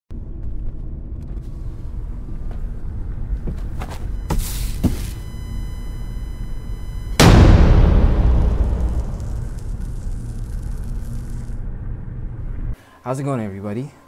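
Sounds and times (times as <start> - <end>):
high ringing tone: 4.1 - 11.6
low rumble: 5.2 - 12.8.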